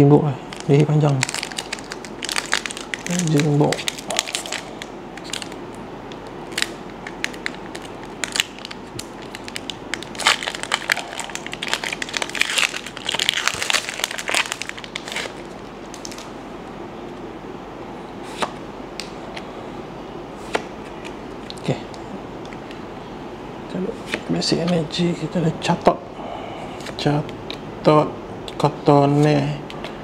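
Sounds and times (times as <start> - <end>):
foil wrapper crinkling: 0.5 - 5.6, 6.2 - 16.3.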